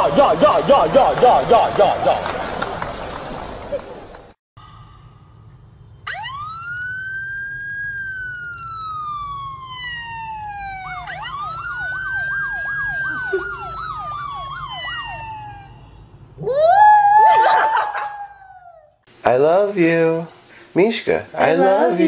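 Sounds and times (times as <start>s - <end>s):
police siren wailing: 0.0s - 2.9s, 6.0s - 18.9s
dog howling: 16.4s - 18.9s.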